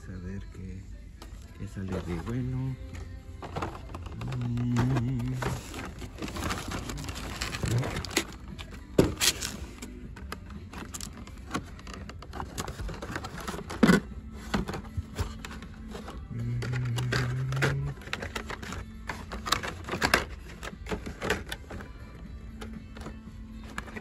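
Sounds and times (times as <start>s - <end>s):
card rustling: 1.2s - 24.0s.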